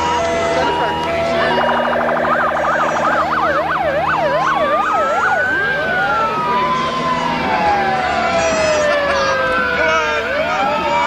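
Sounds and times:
electronic siren wailing: 0.0s - 11.0s.

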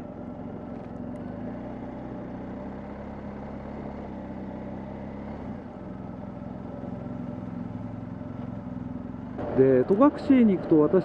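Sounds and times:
motorcycle engine cruising: 0.0s - 11.0s
road noise: 0.0s - 11.0s.

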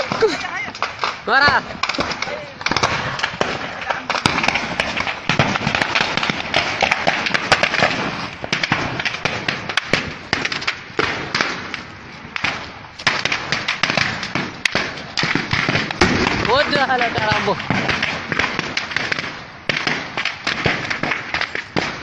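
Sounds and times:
rapid gunfire: 0.0s - 11.8s, 12.4s - 22.0s.

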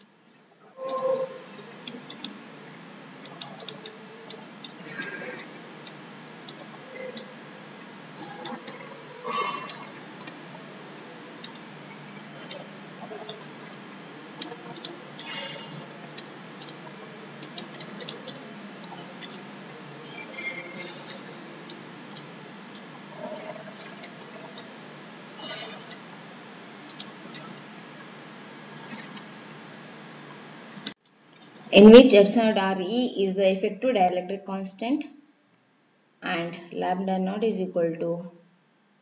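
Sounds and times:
steady background hiss: 0.0s - 39.0s.

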